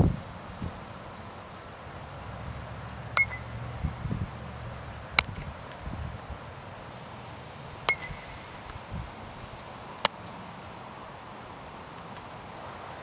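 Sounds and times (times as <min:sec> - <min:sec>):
softball being hit: 0:03.1 - 0:03.6, 0:05.1 - 0:05.5, 0:07.8 - 0:08.5
metal bat ping: 0:03.1 - 0:03.7, 0:07.8 - 0:08.5.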